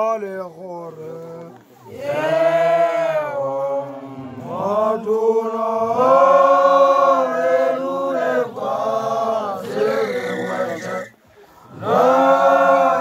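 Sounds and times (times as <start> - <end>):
voices chanting slow song: 0.8 - 13.0
singers breathing: 11.2 - 11.8.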